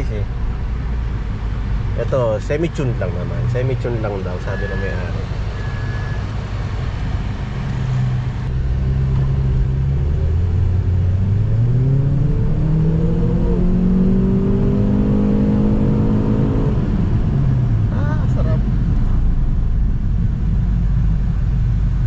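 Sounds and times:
car engine accelerating hard: 0.0s - 22.0s.

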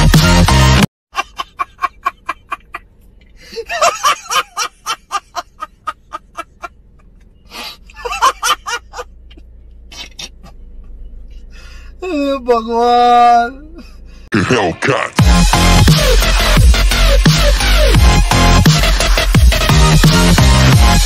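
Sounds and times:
man laughing hard: 1.1s - 2.8s, 3.4s - 6.8s, 8.0s - 9.1s.

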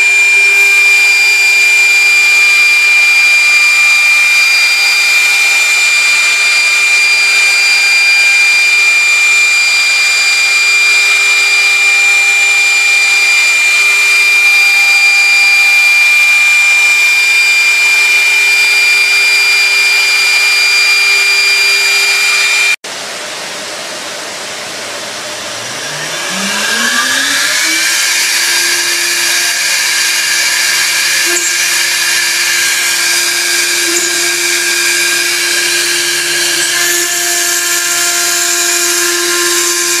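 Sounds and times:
electric motor spinning up: 25.4s - 40.0s
industrial machine motor whining: 25.4s - 40.0s.

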